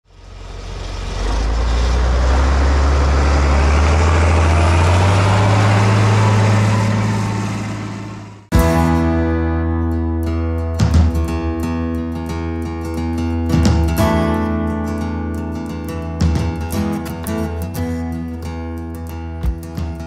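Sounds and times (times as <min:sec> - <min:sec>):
tractor diesel engine running: 0:00.0 - 0:09.0
guitar music: 0:08.5 - 0:20.0.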